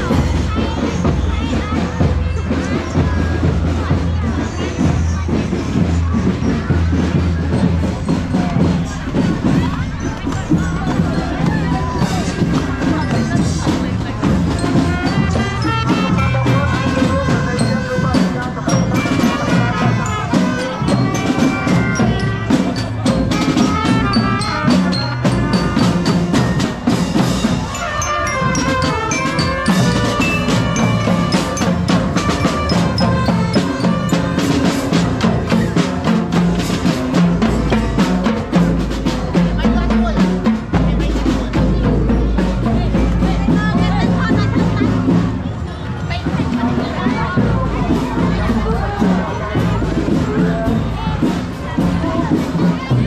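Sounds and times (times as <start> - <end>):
drum beat: 0.0 - 53.0
xylophone melody: 7.9 - 36.0.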